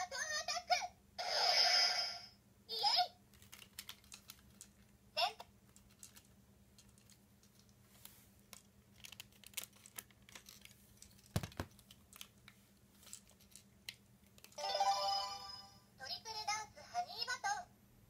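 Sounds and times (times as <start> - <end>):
plastic toy clicks and rattles: 3.4 - 4.9, 5.7 - 7.7, 8.5 - 12.4.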